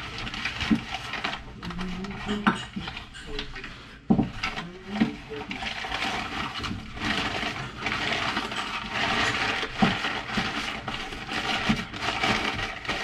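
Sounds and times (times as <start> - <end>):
packing paper rustling: 0.0 - 13.0.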